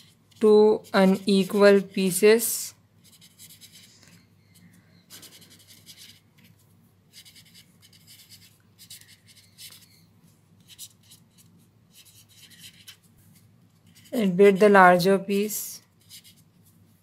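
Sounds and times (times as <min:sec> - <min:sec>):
pen scratching on paper: 0:00.0 - 0:02.2, 0:03.0 - 0:03.9, 0:05.1 - 0:10.0, 0:10.6 - 0:13.1, 0:13.8 - 0:14.7, 0:15.9 - 0:16.7.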